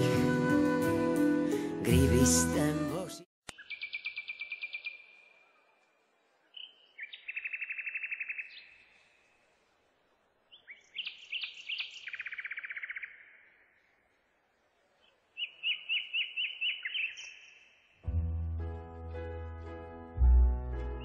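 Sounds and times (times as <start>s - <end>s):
songbird trilling: 15.4s - 17.6s.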